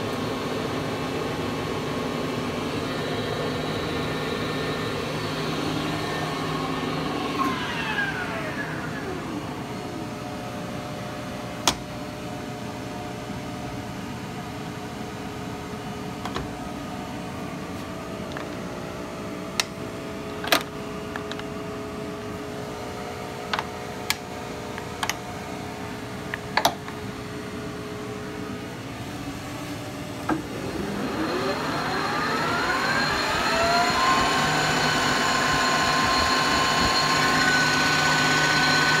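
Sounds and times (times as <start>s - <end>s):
lathe spindle whine: 0.3s - 11.0s, 30.3s - 39.0s
lathe drive humming: 2.7s - 10.2s, 30.3s - 39.0s
lathe gears whining: 2.9s - 10.0s, 30.3s - 39.0s.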